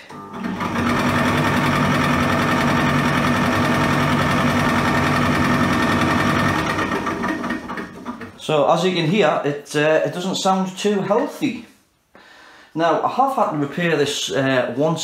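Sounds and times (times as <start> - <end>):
dryer motor hum: 0.0 - 8.5.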